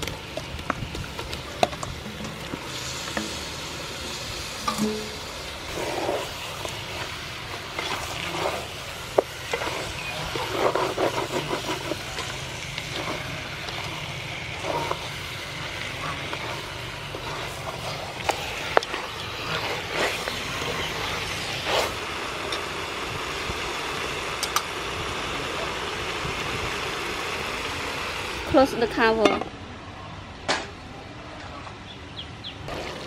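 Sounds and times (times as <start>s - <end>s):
frying hiss: 0.0s - 29.5s, 32.6s - 33.0s
spatula stirring food in pot: 0.2s - 22.1s.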